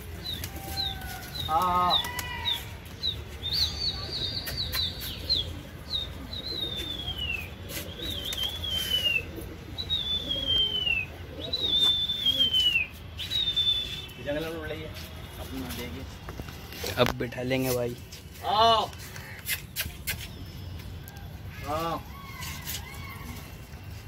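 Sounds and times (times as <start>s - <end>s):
pigeons flying overhead: 0.0s - 3.4s
shrill whistles: 10.0s - 14.3s.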